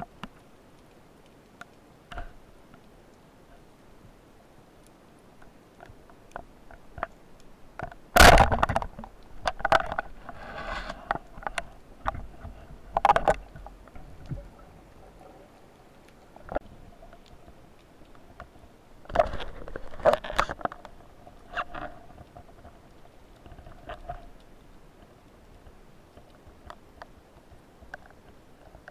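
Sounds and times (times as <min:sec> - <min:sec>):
underwater clicks and knocks: 0:05.4 - 0:28.9
rushes of water and bubbles: 0:08.0 - 0:25.3.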